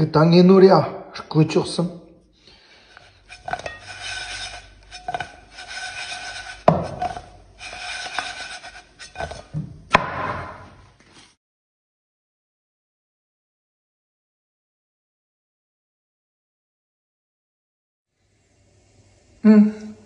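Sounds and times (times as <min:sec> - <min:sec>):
rolling pin rubbing dough: 0:02.8 - 0:10.6
sharp knocks on wooden board: 0:09.9 - 0:10.6.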